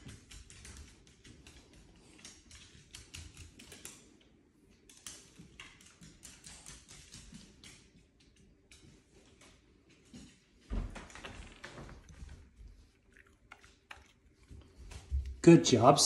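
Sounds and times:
dog claws clicking on wood floor: 0.0s - 15.4s.

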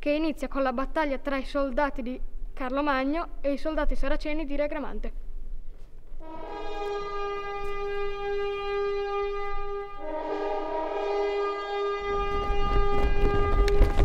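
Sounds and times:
horn long notes: 6.2s - 14.0s.

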